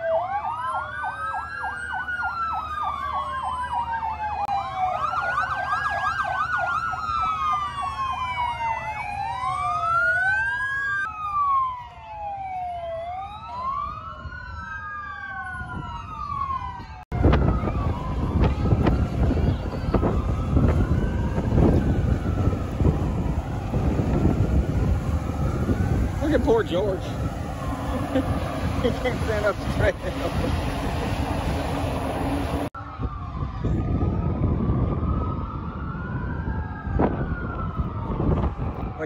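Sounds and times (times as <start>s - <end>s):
emergency sirens wailing: 0.0s - 39.0s
siren yelp: 0.0s - 39.0s
wind rumble on microphone: 15.4s - 39.0s.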